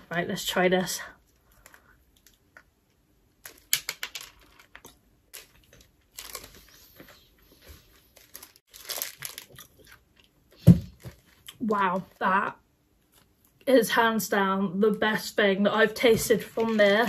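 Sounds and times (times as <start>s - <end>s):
plastic wrapper crinkling: 3.4s - 7.1s, 7.9s - 10.3s, 16.4s - 17.0s.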